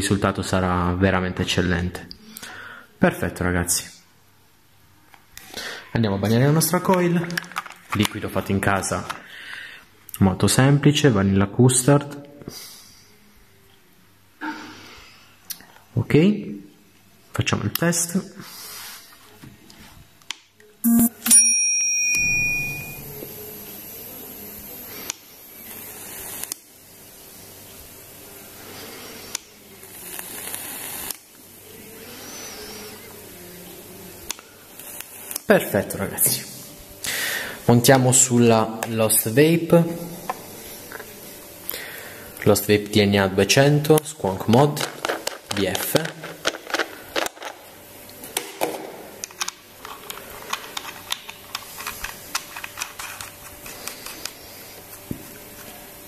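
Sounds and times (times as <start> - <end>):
coil sizzling and hissing: 22.9 - 42.8, 49.2 - 56.0.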